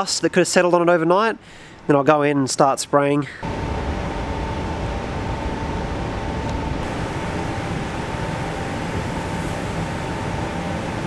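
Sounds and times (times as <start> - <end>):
ventilation fan whining: 0.0 - 11.0
paint spray gun hiss: 6.8 - 11.0.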